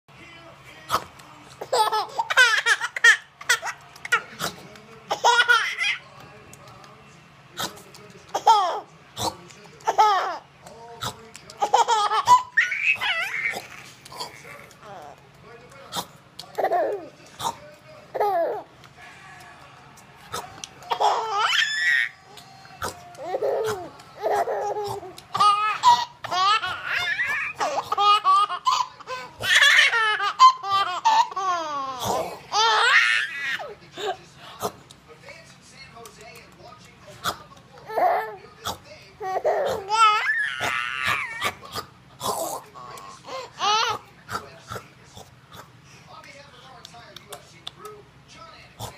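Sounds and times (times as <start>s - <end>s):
baby laughing loudly: 1.6s - 4.5s, 5.1s - 6.0s, 8.3s - 8.9s, 9.8s - 10.5s, 11.5s - 15.2s, 16.5s - 17.2s, 18.1s - 18.7s, 20.6s - 22.2s, 23.0s - 34.2s, 37.8s - 38.4s, 39.2s - 41.8s, 42.5s - 44.1s.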